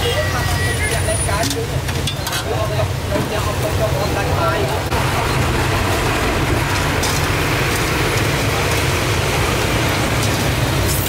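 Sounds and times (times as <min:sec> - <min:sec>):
road traffic: 0:00.0 - 0:11.0.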